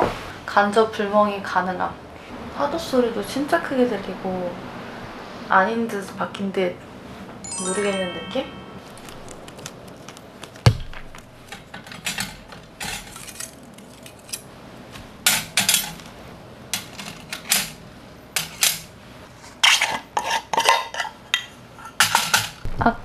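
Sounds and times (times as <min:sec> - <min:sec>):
metal plates clinking and scraping: 0:11.5 - 0:14.4, 0:15.3 - 0:16.0.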